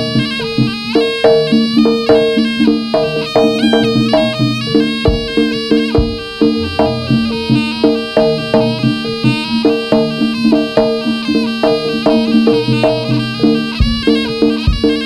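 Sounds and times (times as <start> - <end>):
double-reed shawm melody: 0.0 - 15.0
drums and gong-chimes beat: 1.3 - 11.1, 11.8 - 15.0
heavy low drum strikes: 3.4 - 9.2, 13.8 - 15.0
held low drone tone: 5.9 - 9.1.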